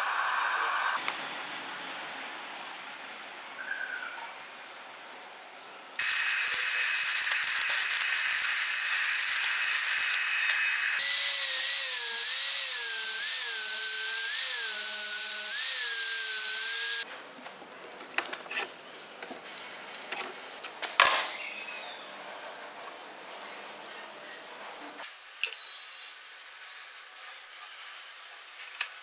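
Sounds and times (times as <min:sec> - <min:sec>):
angle grinder grinding steel: 0:06.0 - 0:17.0
arc welding crackling: 0:06.0 - 0:17.0.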